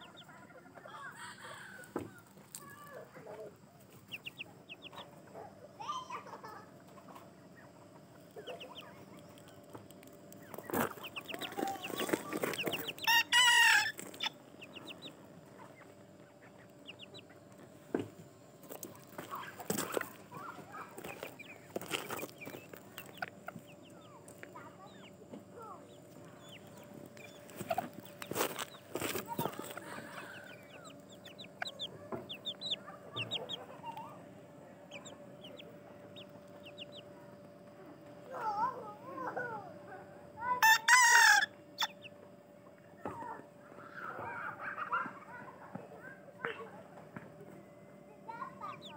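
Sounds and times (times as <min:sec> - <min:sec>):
chickens clucking and chirping: 0:00.0 - 0:48.9
rooster crowing: 0:00.9 - 0:02.2, 0:12.9 - 0:14.0.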